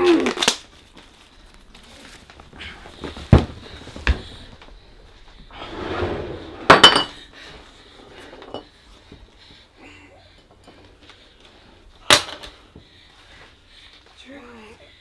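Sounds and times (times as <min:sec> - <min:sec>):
rustling: 0:00.2 - 0:06.7.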